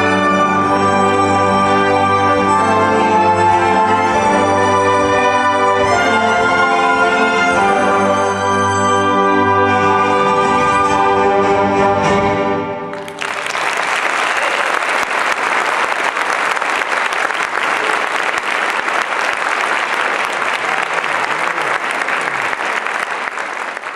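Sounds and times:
audience applause: 0:12.9 - 0:23.9.

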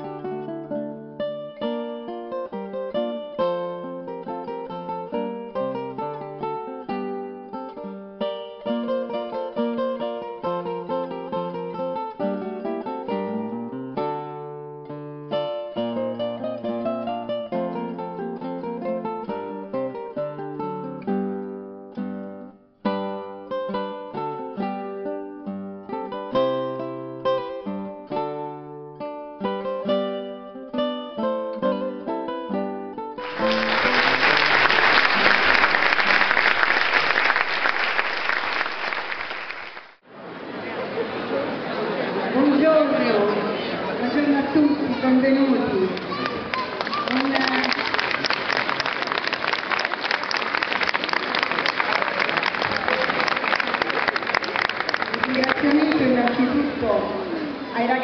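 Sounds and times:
acoustic guitar plucking: 0:00.0 - 0:37.7
audience applauding: 0:33.2 - 0:40.0, 0:45.9 - 0:56.6.

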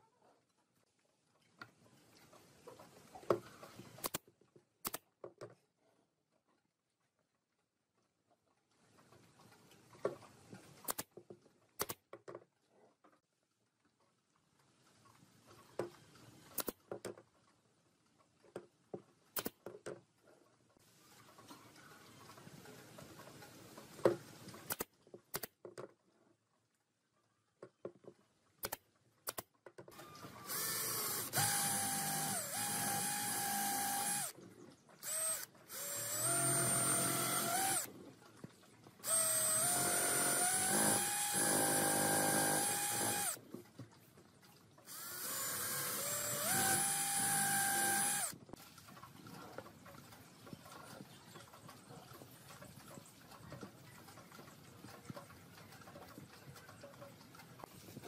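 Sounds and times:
cordless drill boring into wood: 0:29.9 - 0:34.3, 0:35.0 - 0:37.9, 0:39.0 - 0:43.4, 0:44.9 - 0:48.4
pneumatic nailer shots: 0:30.0 - 0:34.3, 0:39.1 - 0:43.4, 0:45.0 - 0:48.4.

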